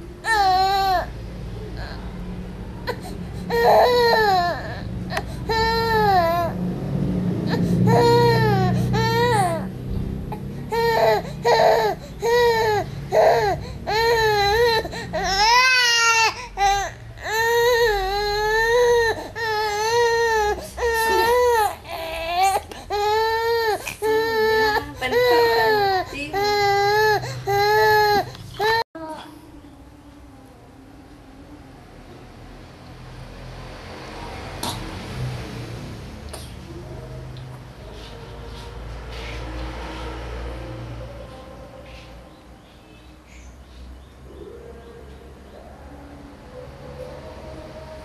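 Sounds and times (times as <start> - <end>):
baby crying: 0.2 - 2.2, 2.8 - 6.6, 7.4 - 29.2
baby squealing: 2.9 - 6.6, 10.7 - 28.8.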